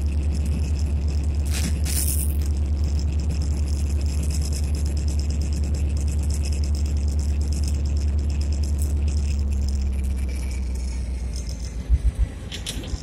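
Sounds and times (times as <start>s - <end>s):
diesel locomotive engine throb: 0.0s - 13.0s.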